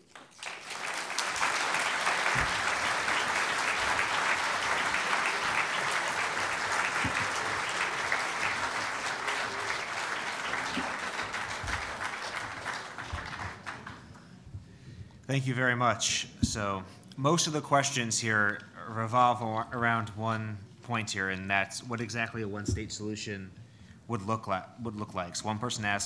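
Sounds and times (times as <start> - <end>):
large audience applauding: 0.0 - 14.4.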